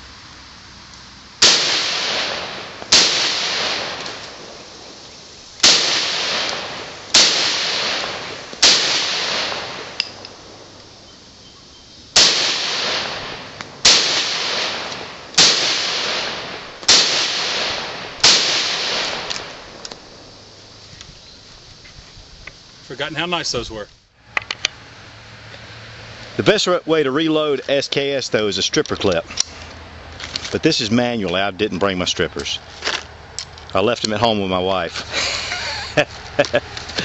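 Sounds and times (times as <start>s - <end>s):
rifle shots with echo: 1.4s - 4.6s, 5.6s - 10.2s, 12.2s - 20.2s.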